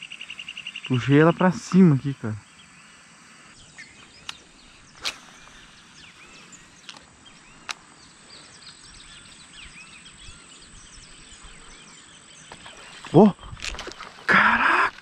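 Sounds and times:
high insect drone: 0:00.0 - 0:15.0
small birds chirping: 0:00.0 - 0:15.0
sharp clicks: 0:05.0 - 0:05.5, 0:06.8 - 0:07.8.

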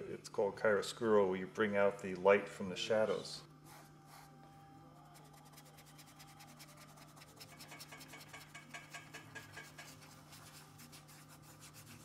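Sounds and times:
paintbrush scratchy strokes: 0:03.6 - 0:04.4, 0:05.0 - 0:12.0.

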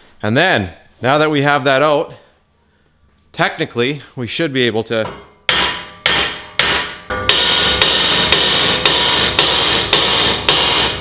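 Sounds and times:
hammer blows on metal: 0:05.0 - 0:11.0
metallic ringing: 0:05.0 - 0:11.0.

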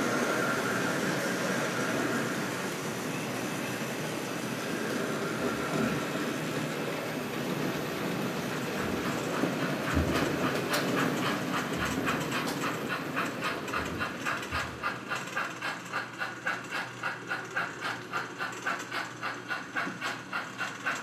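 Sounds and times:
model steam locomotive chuffing: 0:00.0 - 0:21.0
model train rumbling on track: 0:00.0 - 0:21.0.

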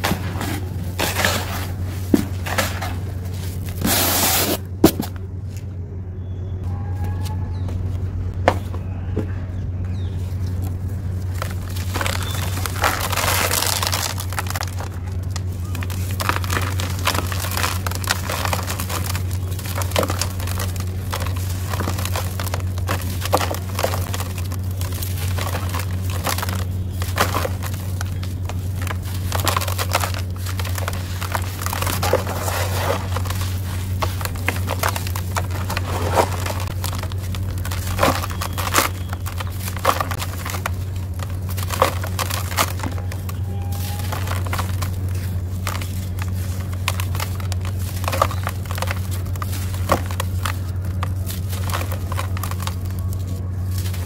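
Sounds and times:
gritty chunks crunching by hand: 0:00.0 - 0:05.7, 0:06.9 - 0:54.0
grit pouring into plastic tub: 0:15.7 - 0:42.8.

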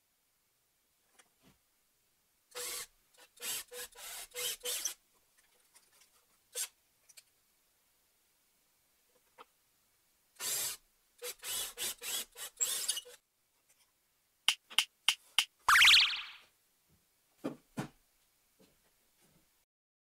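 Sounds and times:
cordless drill boring into wood: 0:02.6 - 0:05.0, 0:10.4 - 0:13.2.

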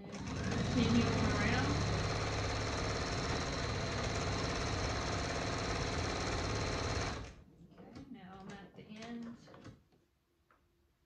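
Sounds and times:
sewing machine stitching: 0:00.0 - 0:07.4.

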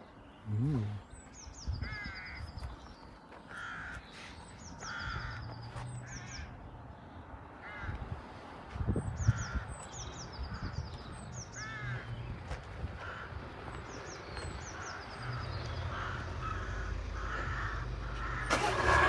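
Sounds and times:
crows cawing: 0:01.8 - 0:02.6, 0:03.4 - 0:06.6, 0:07.6 - 0:08.1, 0:09.2 - 0:09.7, 0:11.5 - 0:12.2, 0:12.9 - 0:13.8, 0:14.6 - 0:19.0.

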